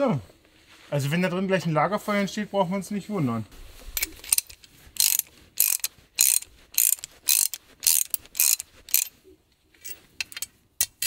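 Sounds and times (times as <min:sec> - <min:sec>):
ratchet wrench clicking: 0:04.0 - 0:09.1.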